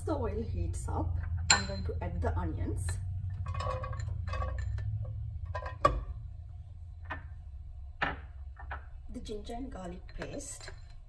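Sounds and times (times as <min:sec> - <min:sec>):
low hum: 0:00.0 - 0:11.0
glass clink: 0:01.5 - 0:01.9.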